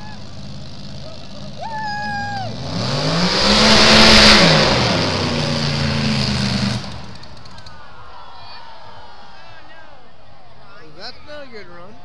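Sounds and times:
boat engine passing at speed: 2.4 - 7.5.

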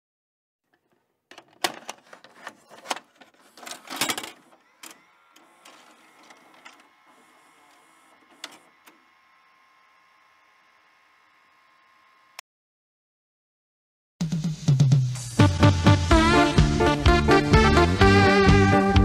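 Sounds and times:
tape mechanism clicks and clunks: 0.7 - 9.3
mechanism whir: 3.5 - 12.4.

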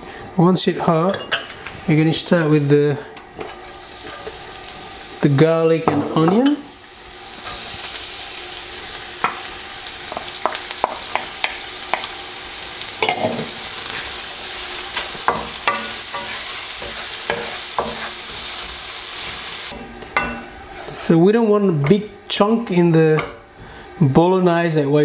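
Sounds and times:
onion sizzling in oil: 3.4 - 20.9.

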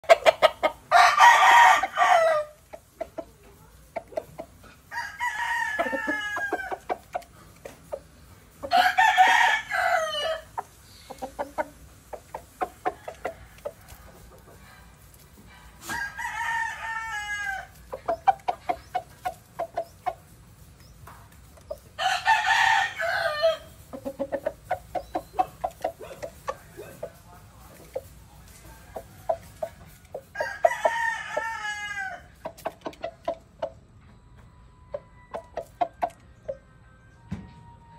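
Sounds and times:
clucking: 0.0 - 0.9, 2.6 - 4.9, 5.8 - 8.8, 10.5 - 15.9, 17.7 - 21.9, 23.8 - 30.4, 32.3 - 34.1, 34.9 - 36.7
rooster crowing: 0.1 - 2.6, 4.9 - 7.0, 8.6 - 10.6, 15.8 - 17.8, 22.0 - 23.8, 28.7 - 32.4.

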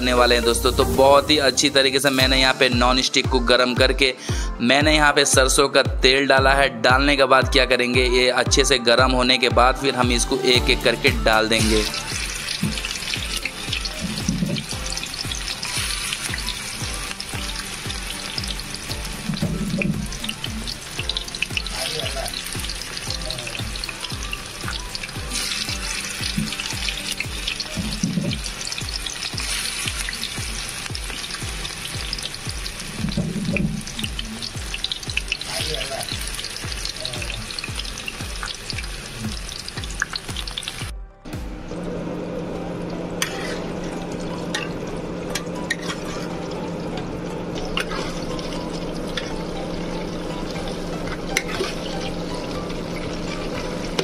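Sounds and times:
background music with a beat: 0.0 - 41.9
oil sizzling in a pan: 10.7 - 40.9, 42.3 - 54.0.

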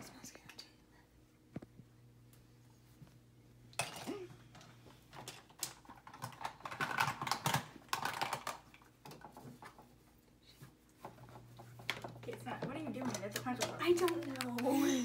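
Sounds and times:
makeup items clattering in a bin: 3.8 - 9.3, 11.8 - 14.7.

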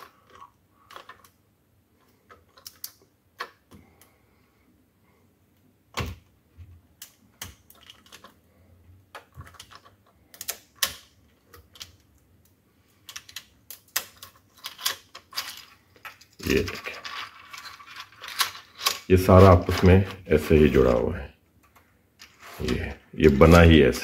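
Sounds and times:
jointed plastic segments clacking: 2.0 - 3.8, 7.0 - 8.4, 9.1 - 20.2.

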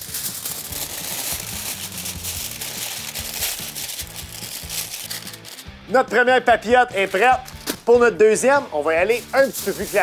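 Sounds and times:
aluminium foil crinkling: 0.0 - 5.7, 9.0 - 10.0
background music with bass line: 0.0 - 10.0.

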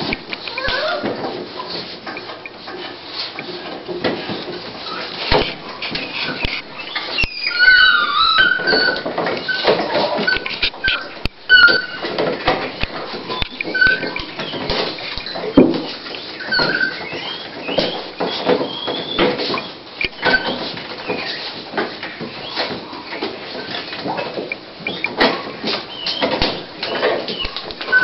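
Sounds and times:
dog squeaking: 0.5 - 1.2, 6.1 - 21.4, 25.9 - 28.0.

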